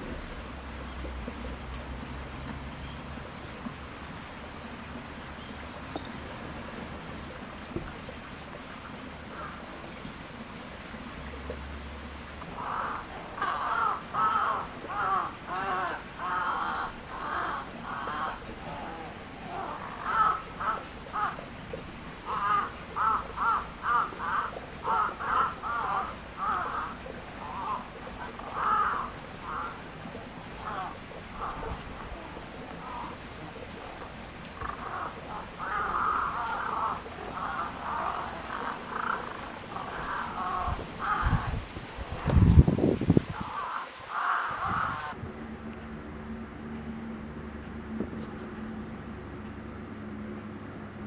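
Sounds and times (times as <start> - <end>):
outdoor background noise: 0.0 - 51.0
crow cawing faintly: 12.6 - 21.4, 22.3 - 29.9, 30.6 - 33.2, 34.6 - 41.6, 43.4 - 45.2.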